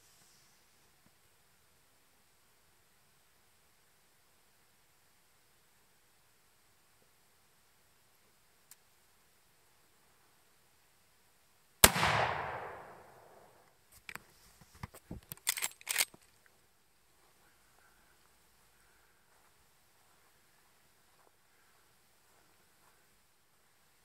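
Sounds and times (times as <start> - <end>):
rifle shot with echo: 11.8 - 13.6.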